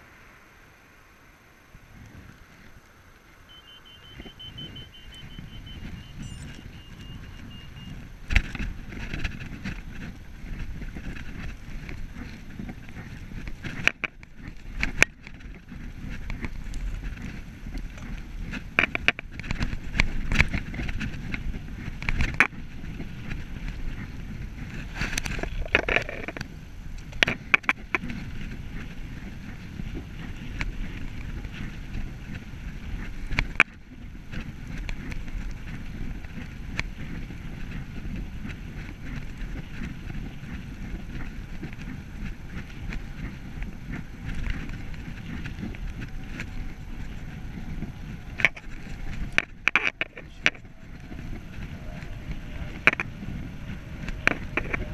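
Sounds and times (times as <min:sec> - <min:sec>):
bicycle tyre noise: 0:00.0 - 0:54.9
wind noise on microphone: 0:01.6 - 0:54.9
bike knocking and rattling: 0:01.9 - 0:54.9
electronic beeping: 0:03.5 - 0:08.0.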